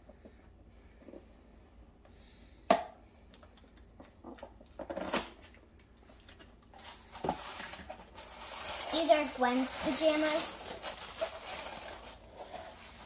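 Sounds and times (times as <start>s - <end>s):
cardboard rustling: 6.8s - 13.0s.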